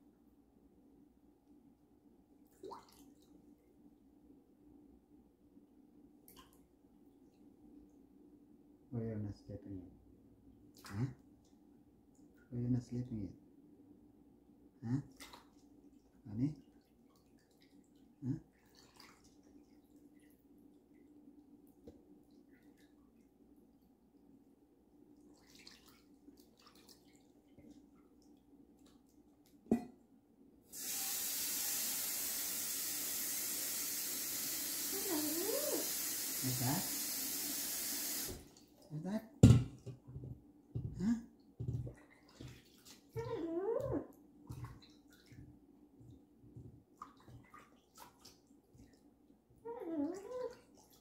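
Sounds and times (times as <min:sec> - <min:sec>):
water running from kitchen tap: 0:30.7 - 0:38.5.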